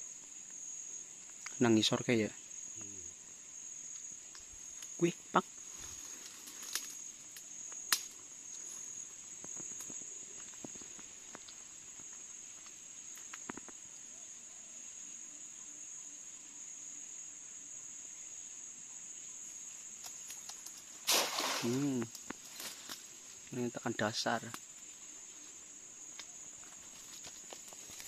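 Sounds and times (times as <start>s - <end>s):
insects chirring: 0.0s - 28.0s.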